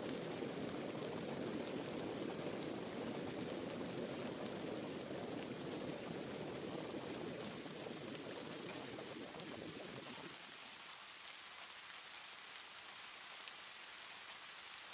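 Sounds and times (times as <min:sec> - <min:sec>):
rushing water: 0:00.0 - 0:14.9.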